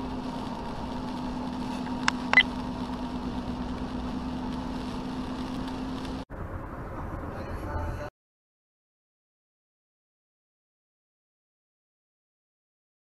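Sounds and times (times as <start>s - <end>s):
tyres hissing on wet road: 0.0s - 6.3s
low car hum: 0.0s - 8.1s.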